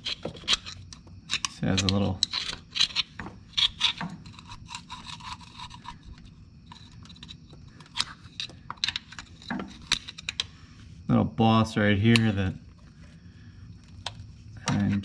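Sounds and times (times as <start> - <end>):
screwdriver scraping metal: 0.0 - 10.5, 13.8 - 15.0.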